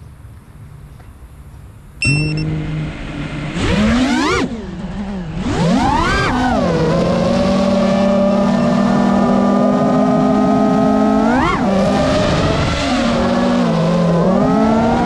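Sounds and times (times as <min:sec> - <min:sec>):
high beep: 0:02.0 - 0:02.6
racing drone motors whining: 0:02.0 - 0:15.0.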